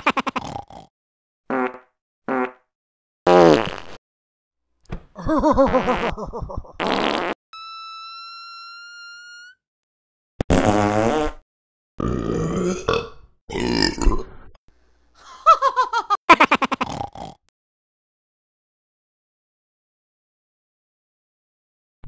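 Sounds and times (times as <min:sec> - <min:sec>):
fart sounds: 0:01.5 - 0:02.7, 0:03.3 - 0:04.0, 0:05.7 - 0:06.2, 0:06.8 - 0:07.4, 0:10.4 - 0:11.4
long squeaky fart: 0:01.5 - 0:02.7, 0:03.3 - 0:04.0, 0:06.8 - 0:07.4, 0:08.3 - 0:09.6, 0:10.4 - 0:11.4.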